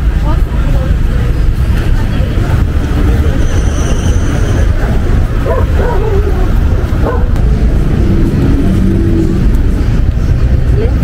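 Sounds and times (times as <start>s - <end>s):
heavy traffic rumble: 0.0s - 11.0s
passers-by: 0.0s - 11.0s.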